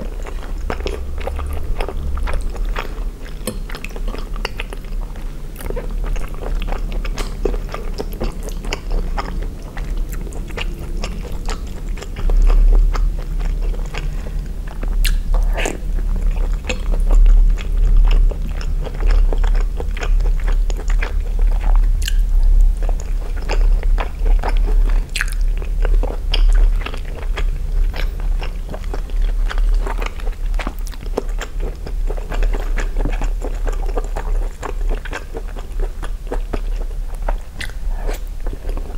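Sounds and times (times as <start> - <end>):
close chewing and wet mouth sounds: 0.0 - 38.9.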